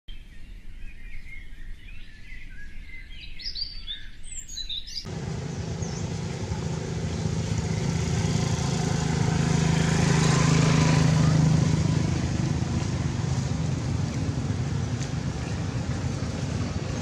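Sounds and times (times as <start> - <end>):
outdoor noise: 0.1 - 17.0
small birds chirping: 0.1 - 17.0
low engine hum: 5.1 - 17.0.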